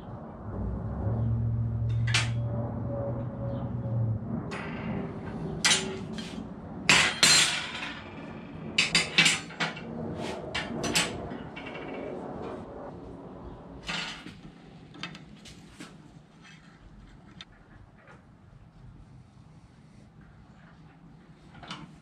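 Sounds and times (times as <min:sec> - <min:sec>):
metal tools clanking on steel table: 0:05.6 - 0:08.1.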